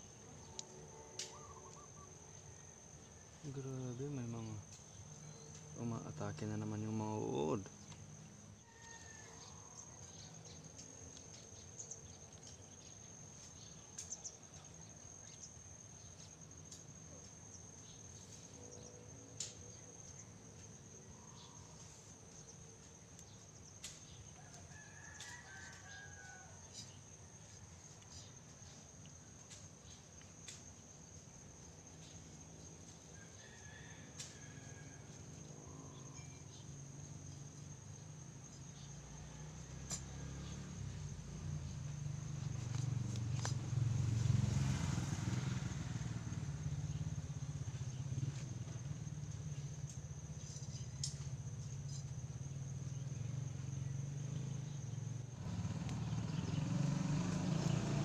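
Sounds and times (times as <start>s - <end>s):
high insect trill: 0.0s - 58.0s
rooster crowing faintly: 8.6s - 10.6s, 24.3s - 27.4s, 33.1s - 36.6s, 38.8s - 41.6s
leaves clicking when handled: 42.3s - 44.3s.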